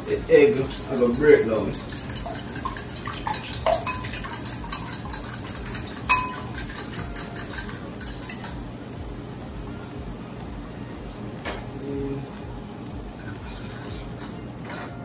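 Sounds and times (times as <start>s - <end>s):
fork beating eggs in bowl: 0.0s - 8.6s, 13.2s - 14.9s.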